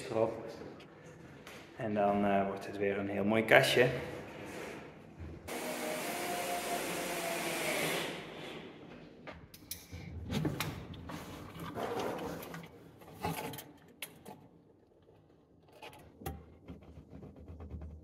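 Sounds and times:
cordless drill whirring: 5.5s - 8.2s.

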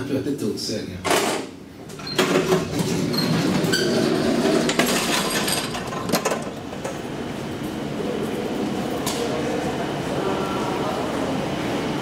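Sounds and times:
elevator doors opening: 1.0s - 11.1s
elevator rattling and clinking: 2.0s - 7.1s.

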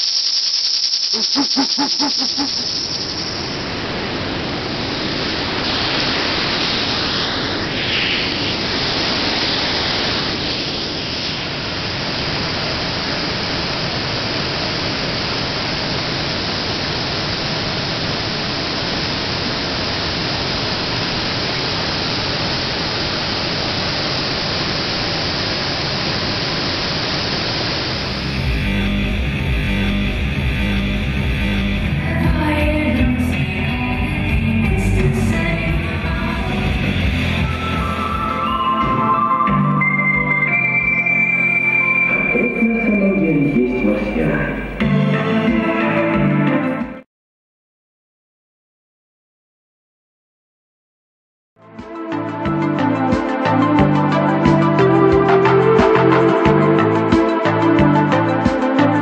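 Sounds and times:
water rushing over weir: 1.1s - 28.1s.

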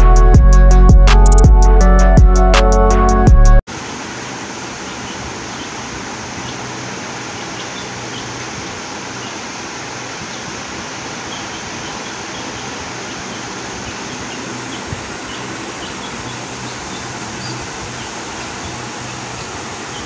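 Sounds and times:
steady hiss: 3.7s - 20.0s
chicks cheeping: 11.3s - 20.0s.

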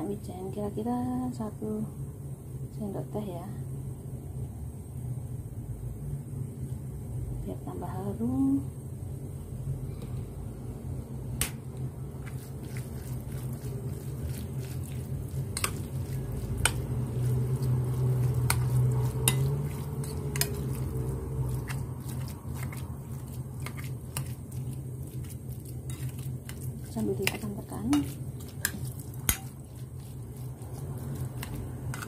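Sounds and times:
steady low hum: 0.0s - 32.0s
spoon stirring in glass bowl: 12.2s - 32.0s.

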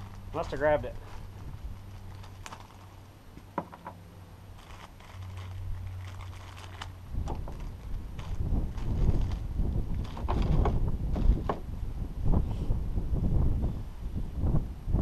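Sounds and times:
low rumble: 0.0s - 3.3s, 4.0s - 15.0s
small parts clicking and crinkling: 0.0s - 4.0s, 4.6s - 9.4s
steady low hum: 0.0s - 15.0s.

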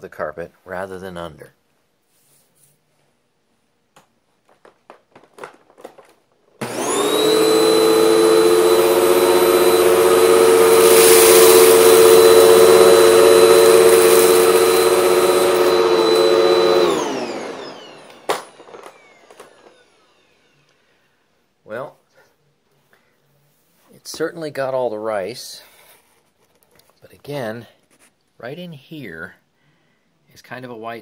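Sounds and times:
vacuum cleaner whining: 5.1s - 21.0s.

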